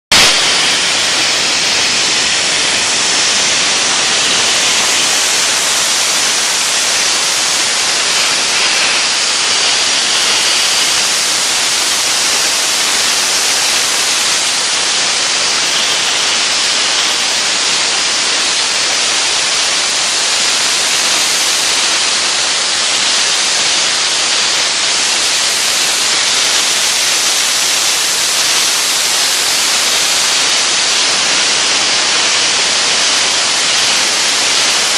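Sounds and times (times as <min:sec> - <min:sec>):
dry ice blasting nozzle hissing: 0:00.1 - 0:34.9.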